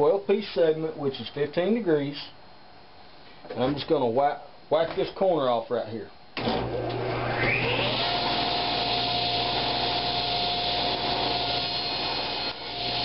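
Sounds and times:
table saw motor whine: 6.4s - 13.0s.

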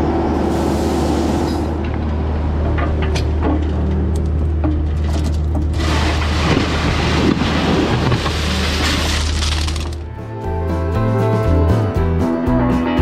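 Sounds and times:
heavy equipment engine humming: 0.0s - 10.4s.

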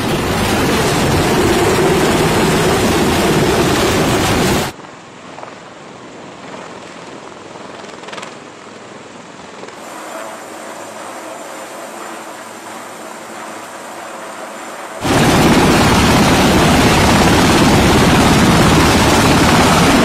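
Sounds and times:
distant hovering helicopter hum: 0.0s - 4.7s, 6.3s - 20.0s
helicopter rotor wash and turbine: 0.0s - 4.8s, 9.8s - 20.0s.

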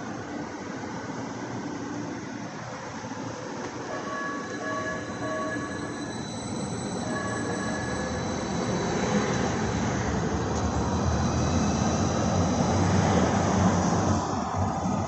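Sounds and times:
train rumbling on rails: 0.0s - 15.0s
short pitched beeps: 3.9s - 8.4s
wheel squeal: 3.9s - 10.1s.

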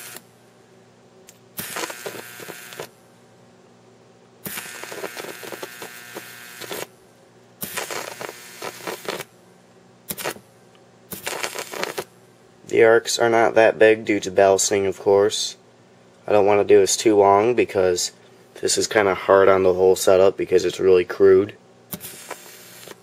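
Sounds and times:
faint steady hum: 0.0s - 23.0s
transformer buzzing: 1.5s - 2.9s, 4.4s - 6.9s, 7.6s - 9.3s, 11.1s - 12.1s.

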